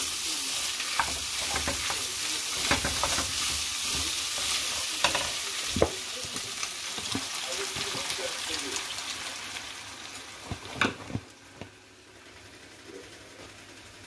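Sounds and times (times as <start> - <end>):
meat sizzling in a skillet: 0.0 - 10.8
wooden spoon scraping a pan: 0.6 - 7.9
spoon knocking against pan: 2.6 - 3.6.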